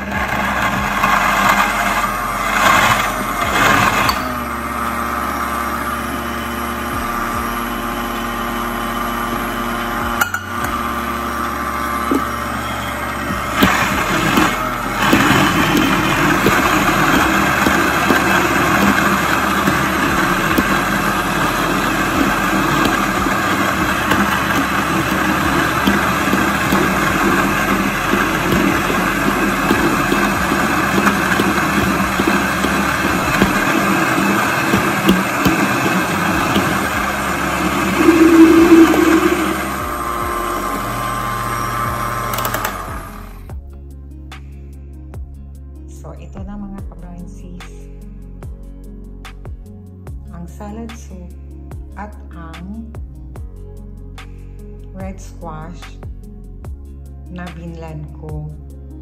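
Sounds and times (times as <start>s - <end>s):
blender motor blending vegetables: 0.0s - 43.6s.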